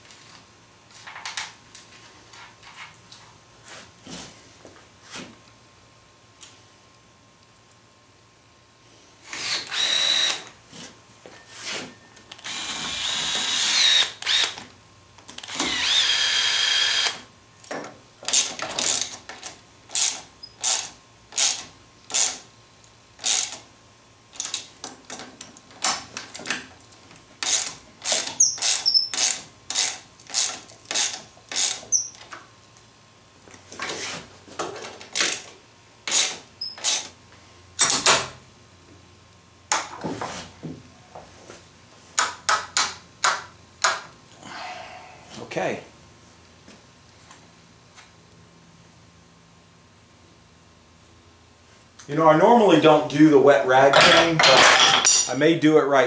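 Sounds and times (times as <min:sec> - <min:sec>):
hand ratchet strokes: 0:19.9 - 0:22.4, 0:23.2 - 0:23.6, 0:27.4 - 0:32.3, 0:36.1 - 0:37.1.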